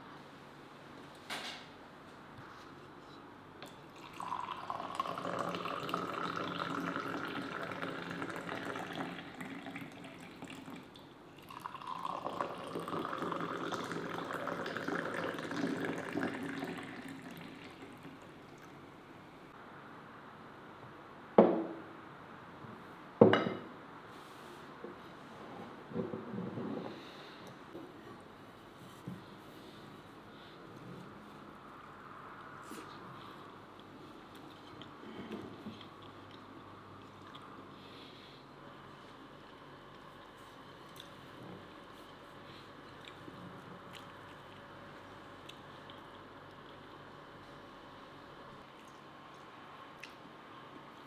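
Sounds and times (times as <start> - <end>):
tea pouring into glass: 3.9 - 18.7.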